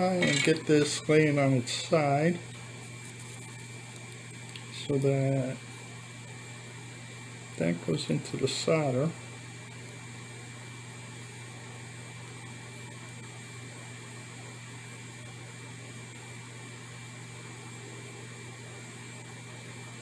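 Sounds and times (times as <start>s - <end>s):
steady low hum with hiss: 0.0s - 20.0s.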